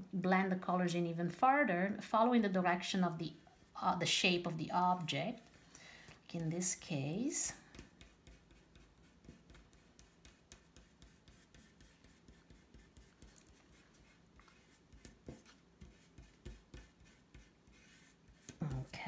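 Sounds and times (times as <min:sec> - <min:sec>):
fingertip rubbing pastel on paper: 0:07.1 - 0:19.0.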